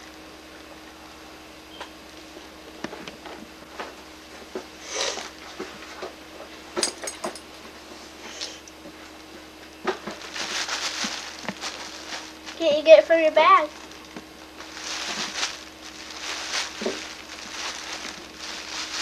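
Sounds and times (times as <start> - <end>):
plastic bag crinkling: 9.9 - 19.0.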